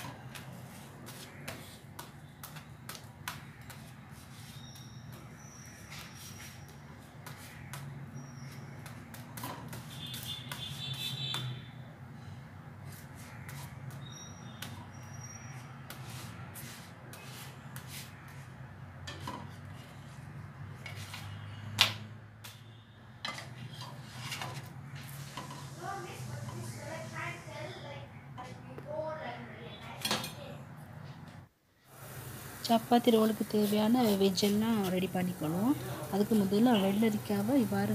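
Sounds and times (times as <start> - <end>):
spatula scraping on griddle: 19.1 - 21.5, 23.3 - 26.7.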